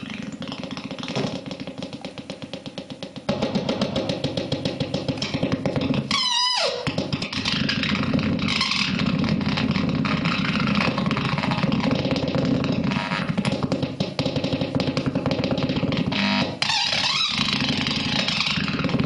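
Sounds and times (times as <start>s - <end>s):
rapid electronic buzz: 14.4s - 19.0s.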